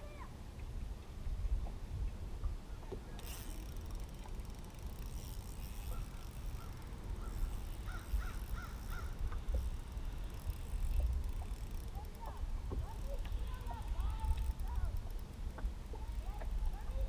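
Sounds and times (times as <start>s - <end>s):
low steady rumble: 0.0s - 17.0s
crow cawing: 6.6s - 9.2s.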